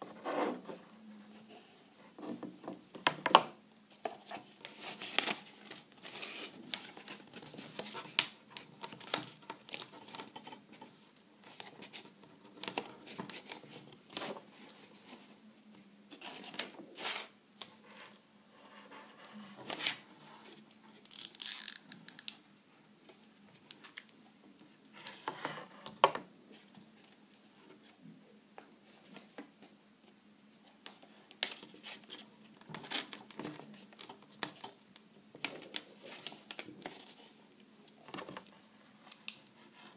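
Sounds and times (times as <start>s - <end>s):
card crinkling and rustling: 4.0s - 15.2s.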